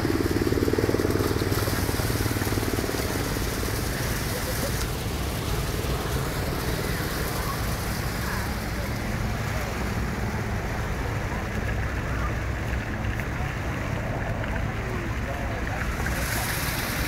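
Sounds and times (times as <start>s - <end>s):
distant road traffic: 0.0s - 17.0s.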